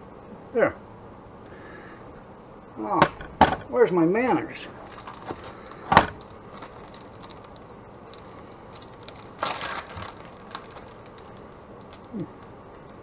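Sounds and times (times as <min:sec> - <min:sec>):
plastic package crinkling: 0:04.7 - 0:13.0
small ticks: 0:10.2 - 0:13.0
low vocal sound: 0:12.0 - 0:12.4.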